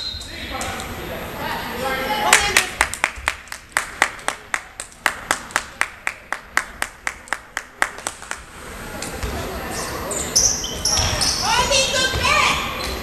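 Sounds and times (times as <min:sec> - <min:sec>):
rhythmic hand clapping with echo: 0:02.3 - 0:08.4.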